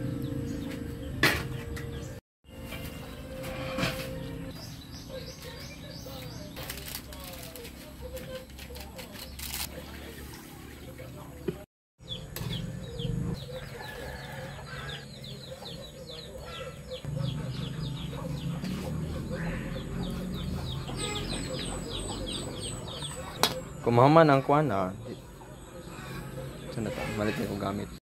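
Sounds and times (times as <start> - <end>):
chicks peeping: 12.1 - 23.4
chickens clucking: 12.3 - 27.4.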